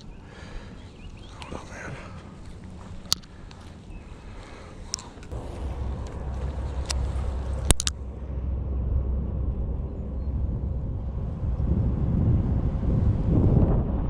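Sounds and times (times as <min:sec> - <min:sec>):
wind buffeting microphone: 0:00.0 - 0:14.0
sharp clicks: 0:01.1 - 0:08.0.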